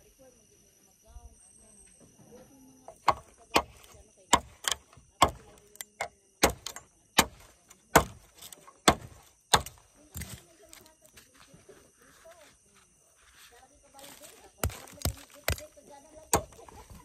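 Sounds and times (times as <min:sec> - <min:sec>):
tool knocking wooden stake: 0:02.9 - 0:10.4, 0:14.6 - 0:15.6, 0:16.3 - 0:16.9.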